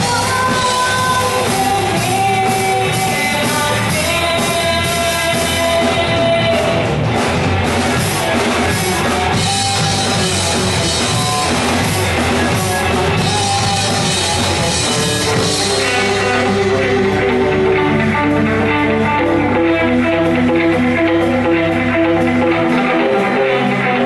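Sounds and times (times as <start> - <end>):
live rock band playing: 0.0 - 24.0
picked guitar notes: 0.0 - 24.0.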